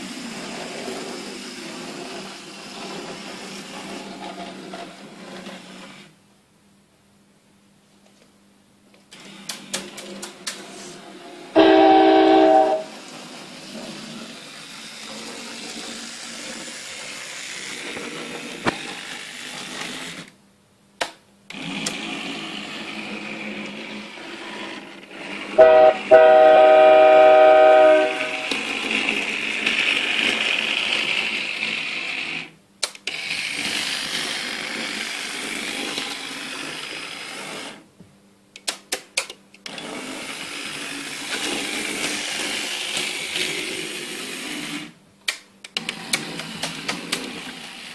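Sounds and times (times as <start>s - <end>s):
model train motor whirring: 0.0s - 6.1s, 9.1s - 20.3s, 21.5s - 37.8s, 39.6s - 45.0s, 45.8s - 47.9s
electronic train horn: 11.6s - 13.0s, 25.6s - 28.6s.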